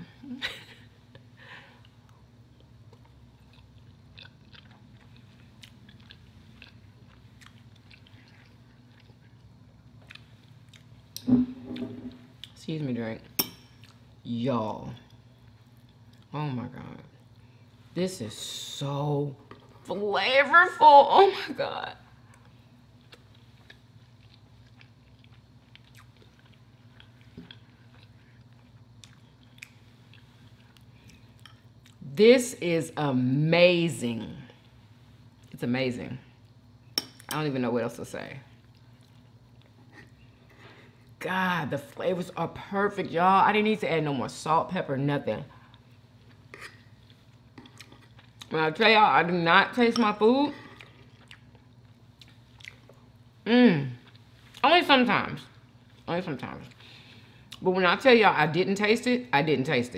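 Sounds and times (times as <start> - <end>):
steady low hum: 0.0 - 59.9
person chewing food: 1.8 - 11.2, 15.1 - 16.3, 22.3 - 32.0, 45.6 - 48.5, 50.6 - 53.2.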